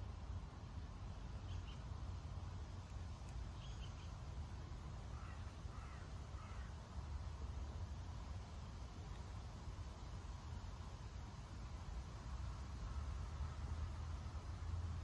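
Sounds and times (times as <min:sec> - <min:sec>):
distant bird calls: 0:03.5 - 0:04.2, 0:05.1 - 0:06.8.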